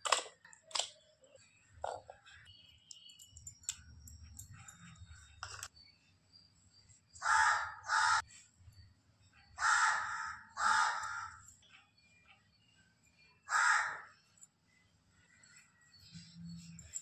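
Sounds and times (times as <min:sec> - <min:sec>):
bird cawing harshly: 0:09.6 - 0:11.4.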